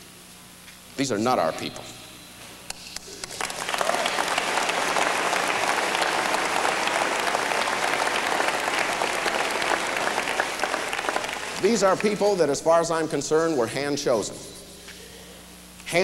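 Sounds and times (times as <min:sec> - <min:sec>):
audience applauding: 0:03.2 - 0:12.4.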